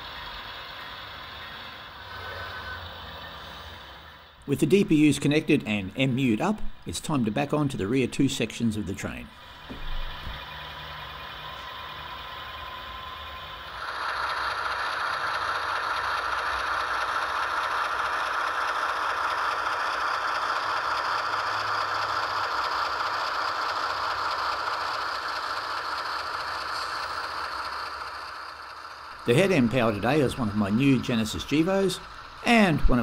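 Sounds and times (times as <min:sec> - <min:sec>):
diesel engine sound through small speakers: 0:00.0 - 0:33.0
model trains rattling on track: 0:00.0 - 0:33.0.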